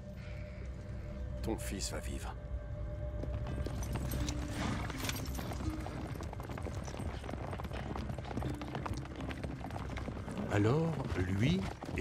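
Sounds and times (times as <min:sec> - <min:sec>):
horse hoofbeats galloping on dirt: 0:03.2 - 0:12.0.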